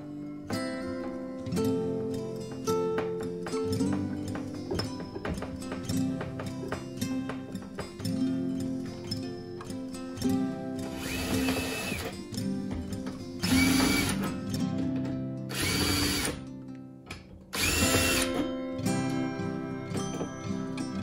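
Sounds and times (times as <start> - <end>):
acoustic guitar music: 0.0 - 21.0
cordless drill driving screws: 10.9 - 12.2, 13.4 - 14.4, 15.5 - 16.4, 17.5 - 18.5.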